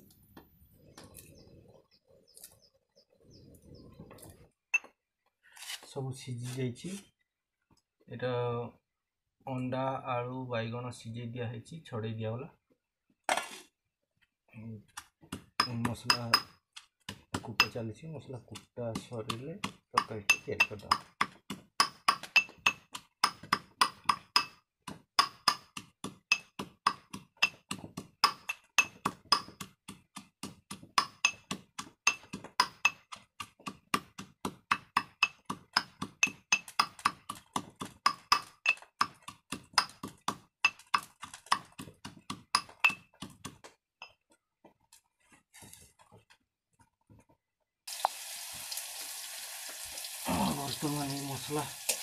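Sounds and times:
pounding spices with ringing clinks: 0:42.6 - 0:43.1.

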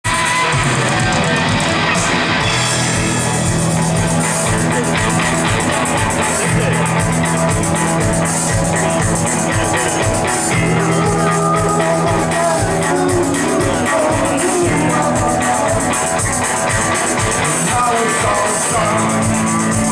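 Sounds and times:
bass guitar: 0:00.0 - 0:19.9
drum kit: 0:00.0 - 0:19.9
electric guitar: 0:00.0 - 0:19.9
rock band playing live: 0:00.0 - 0:19.9.

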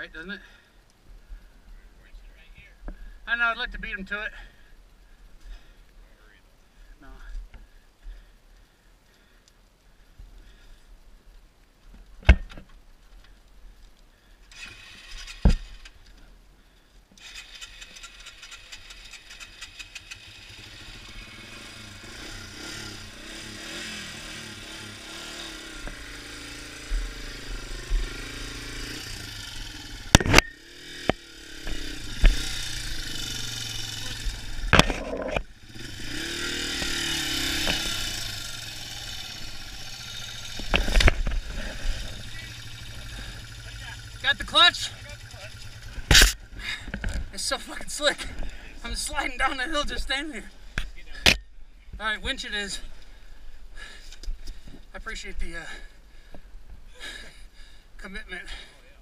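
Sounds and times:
motorcycle engine revving: 0:14.5 - 0:16.0, 0:17.2 - 0:49.8.

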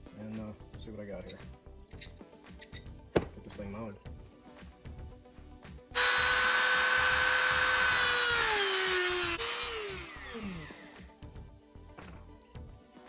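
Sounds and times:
rotary tool whining: 0:06.0 - 0:11.1.

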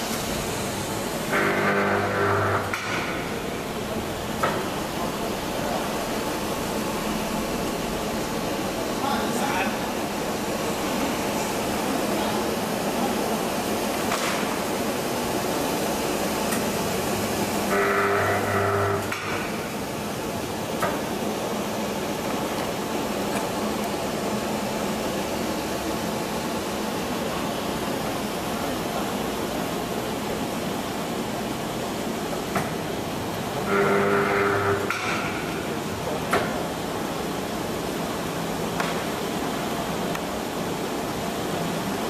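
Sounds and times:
brief buzzing tone: 0:01.3 - 0:02.8, 0:17.7 - 0:19.2, 0:33.6 - 0:34.9.

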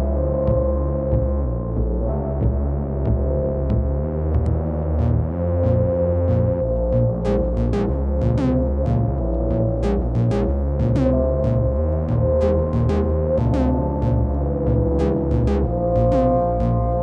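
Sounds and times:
synthesizer bass pattern: 0:00.0 - 0:17.0
drum machine hi-hat ticks: 0:04.4 - 0:16.8.

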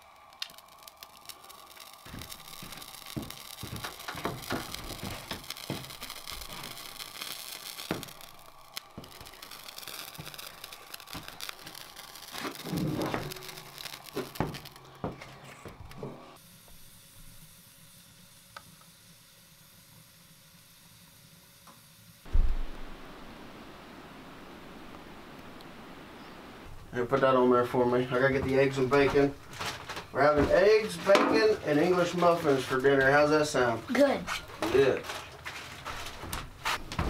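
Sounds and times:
match being struck: 0:00.0 - 0:16.0
steady hiss: 0:00.0 - 0:35.0
fire crackling: 0:00.0 - 0:37.0.

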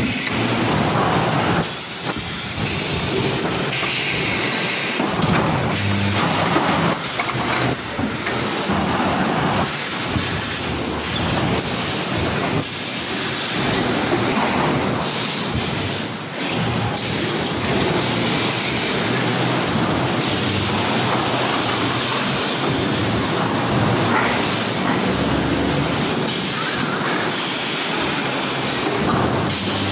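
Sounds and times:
welding line mechanical rush with hiss: 0:00.0 - 0:29.9.

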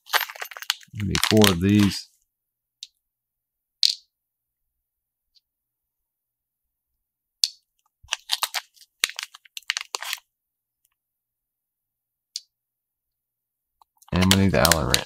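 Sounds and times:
plastic bag crinkling: 0:00.0 - 0:02.0, 0:08.1 - 0:10.2, 0:14.1 - 0:15.0.

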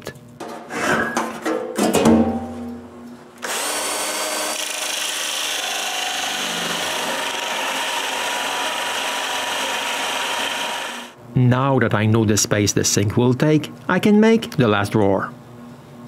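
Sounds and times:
drill hole saw grinding: 0:03.4 - 0:11.1.

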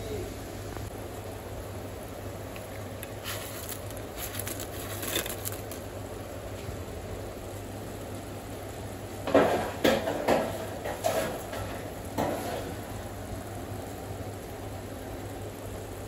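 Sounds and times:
steady low hum: 0:00.0 - 0:16.0
dishes and utensils clattering: 0:09.3 - 0:12.8.

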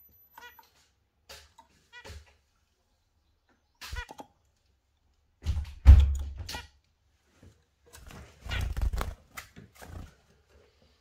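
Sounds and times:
bird wings fluttering: 0:08.0 - 0:10.3.

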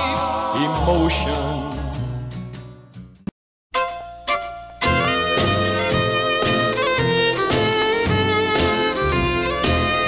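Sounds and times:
song playing: 0:00.0 - 0:02.6, 0:03.7 - 0:10.0
ringing notes: 0:03.8 - 0:05.9
music with strings: 0:03.8 - 0:10.0.

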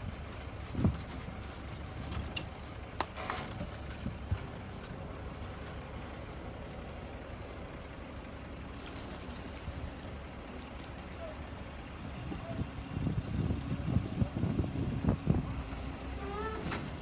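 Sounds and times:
wind rumble on microphone: 0:00.0 - 0:02.5, 0:03.4 - 0:04.8, 0:11.7 - 0:17.0.

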